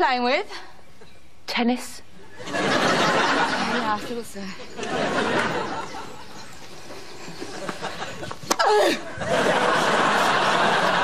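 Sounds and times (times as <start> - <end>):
audience laughter: 2.4 - 8.4, 9.0 - 11.0.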